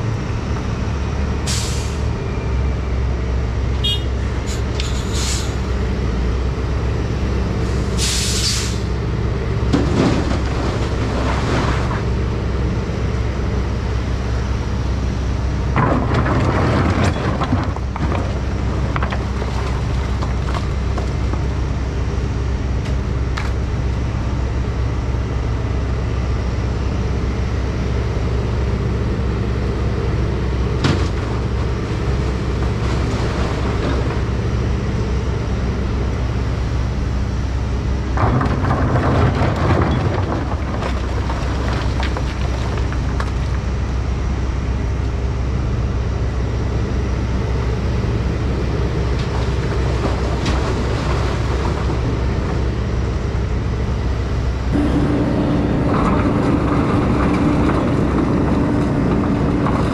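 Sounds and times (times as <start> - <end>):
diesel excavator engine running: 0.0 - 59.9
rock and mud rattling: 9.6 - 12.6, 15.6 - 21.9, 30.7 - 34.6, 38.0 - 44.0, 48.5 - 53.2, 54.7 - 59.9.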